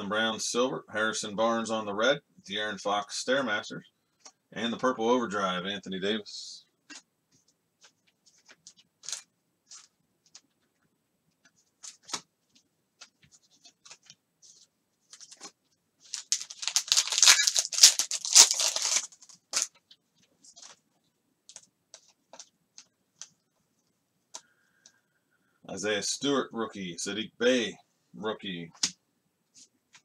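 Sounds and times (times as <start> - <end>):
wrapper and cards rustling: 6.9 - 23.4
foil pack ripping: 16.1 - 19.7.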